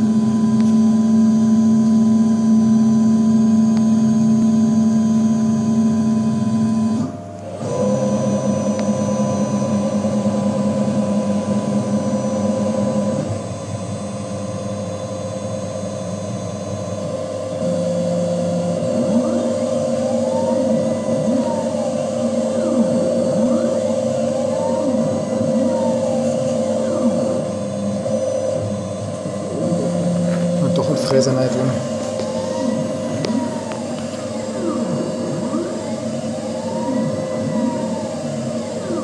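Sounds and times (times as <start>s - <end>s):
milling machine motors humming: 0.0s - 39.0s.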